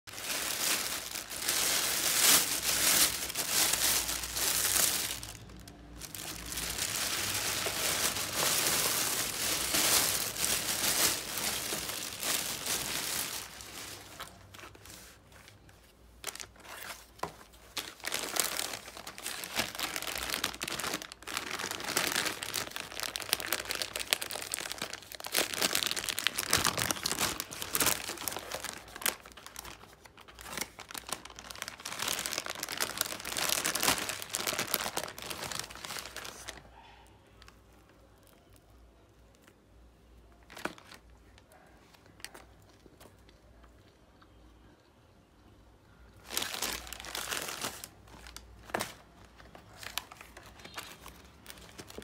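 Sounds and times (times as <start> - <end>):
paper bag rustling: 0.1 - 15.6, 16.2 - 36.6
plastic bag crinkling: 0.1 - 36.7, 40.4 - 43.2, 46.2 - 52.0.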